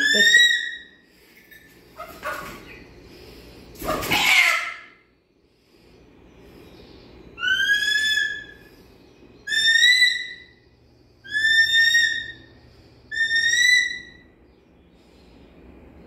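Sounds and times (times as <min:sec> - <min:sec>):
eagle whistled calls: 0:07.4 - 0:08.8, 0:09.4 - 0:10.6, 0:11.2 - 0:14.3.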